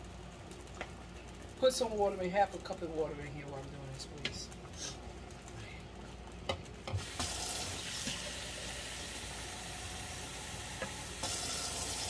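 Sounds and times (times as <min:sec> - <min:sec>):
kitchen tap running: 0:06.9 - 0:12.0.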